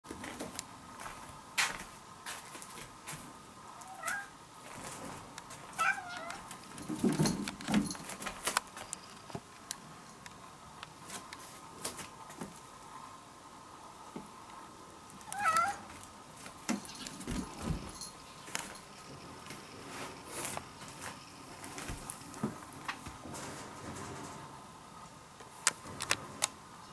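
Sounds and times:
cat meowing: 3.8s - 4.4s, 5.8s - 6.5s, 15.2s - 15.9s.

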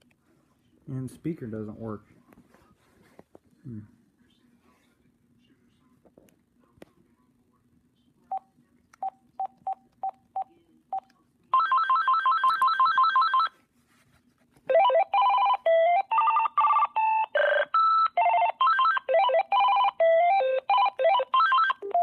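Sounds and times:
melodic ringtone: 14.7s - 22.0s.

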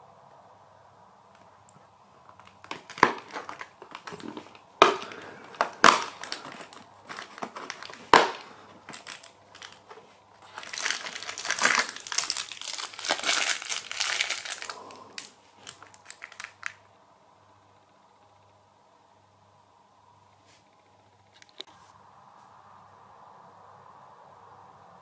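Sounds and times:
plastic packet crinkling: 2.2s - 16.8s.

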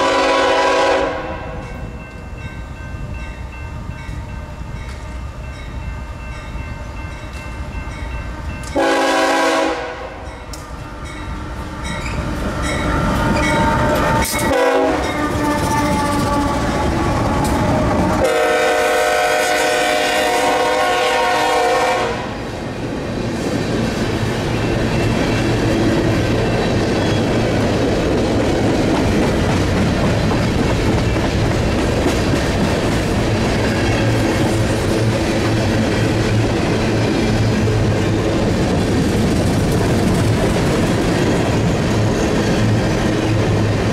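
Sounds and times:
train air horn blasts: 0.0s - 1.6s, 8.8s - 10.3s, 13.4s - 16.8s, 18.1s - 22.4s
locomotive engines: 10.4s - 19.1s
train wheels clacking over rail joints: 24.5s - 43.9s.

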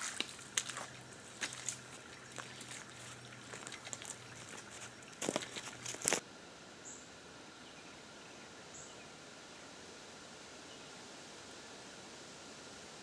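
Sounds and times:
footsteps in boots on wet ground: 0.0s - 6.2s
faint outdoor hiss: 0.0s - 13.0s.

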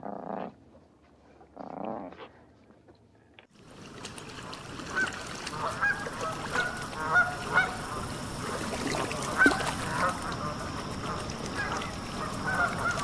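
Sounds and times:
steady background hiss: 3.6s - 13.0s
birds calling: 4.4s - 13.0s.

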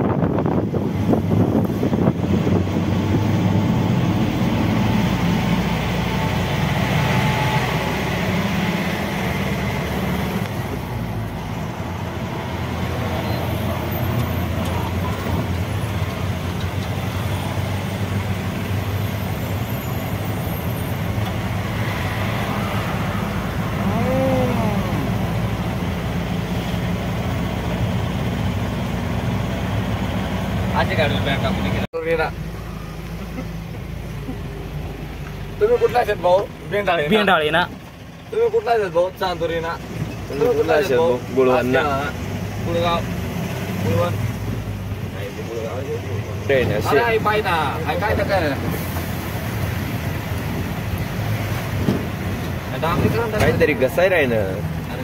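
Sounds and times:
road and wind noise: 0.0s - 55.0s
vehicle engine rumble: 0.0s - 55.0s
pitched tone rising and falling: 21.5s - 26.0s.

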